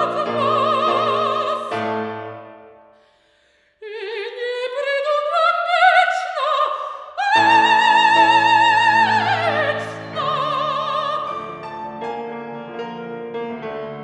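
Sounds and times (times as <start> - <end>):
woman singing opera: 0.0 - 1.9, 3.8 - 11.6
piano chords: 0.0 - 3.1, 7.3 - 14.0.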